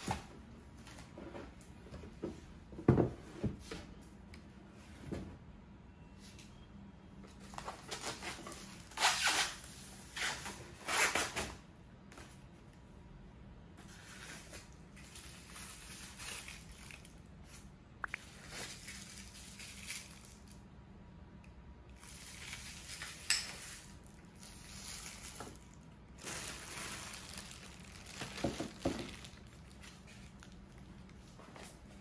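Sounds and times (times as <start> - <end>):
plastic wrap crinkling: 14.1 - 17.2, 18.2 - 20.6, 22.0 - 31.1.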